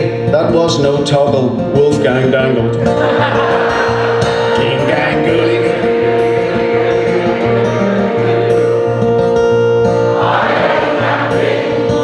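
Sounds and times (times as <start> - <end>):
acoustic guitar strummed and picked: 0.0 - 12.0
crowd of voices: 1.8 - 12.0
person singing folk song: 4.2 - 9.3.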